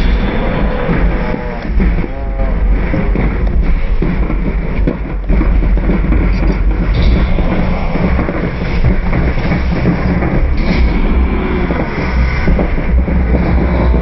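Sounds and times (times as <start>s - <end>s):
stadium crowd noise: 0.0s - 4.5s.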